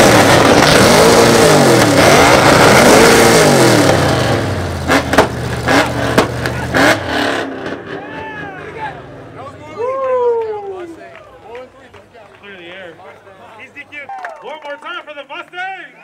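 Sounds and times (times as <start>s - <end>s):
car engine revving: 0.0s - 9.6s
exhaust pops: 3.8s - 7.0s.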